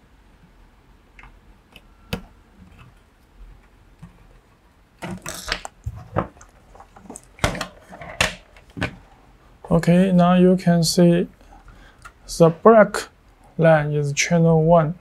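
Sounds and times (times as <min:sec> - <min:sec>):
circuit board and cables clattering: 0:05.0 - 0:09.0.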